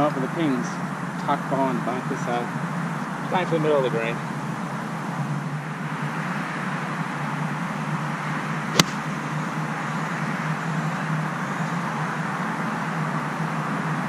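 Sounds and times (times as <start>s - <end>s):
steady background noise: 0.0s - 14.0s
golf club striking ball: 8.7s - 9.3s.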